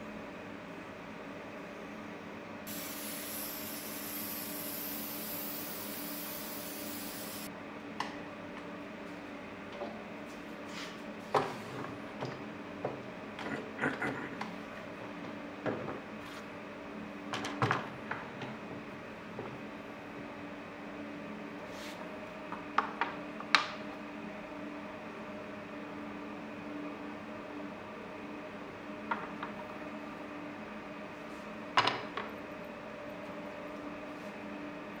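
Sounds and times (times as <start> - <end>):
aerosol spray hissing: 2.7 - 7.5.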